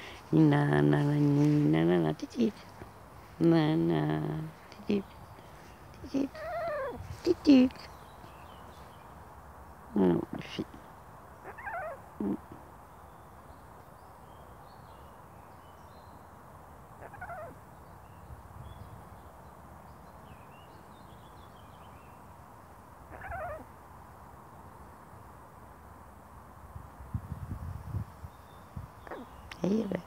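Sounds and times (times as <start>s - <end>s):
parrot calling: 6.3s - 7.0s, 11.4s - 12.0s, 17.0s - 17.6s, 23.1s - 23.7s, 29.1s - 29.4s.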